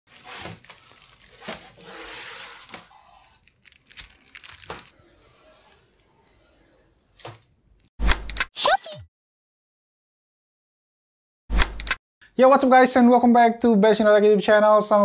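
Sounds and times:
plastic film peeling off screen: 0.1s - 7.5s.

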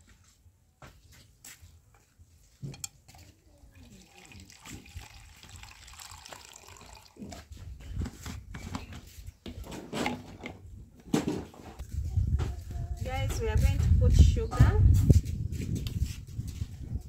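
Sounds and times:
juice dripping into a cup: 3.7s - 7.4s.

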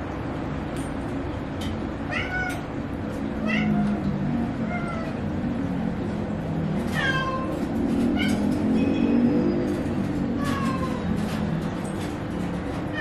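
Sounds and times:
cats meowing: 2.0s - 2.8s, 3.4s - 5.4s, 6.7s - 9.0s, 10.1s - 11.6s, 12.8s - 13.0s.

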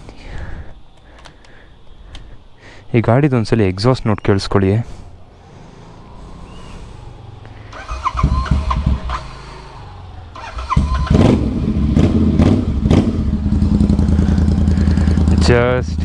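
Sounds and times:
starter cranking: 7.7s - 12.1s
motorcycle engine idling loudly: 7.7s - 16.0s.

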